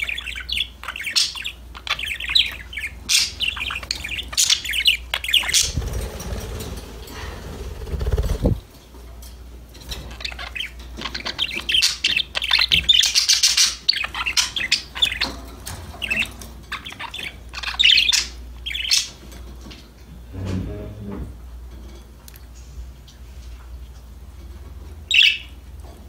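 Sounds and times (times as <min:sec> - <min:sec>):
budgerigars chirping and warbling: 0:00.0 - 0:08.6, 0:09.8 - 0:19.7, 0:25.0 - 0:25.6.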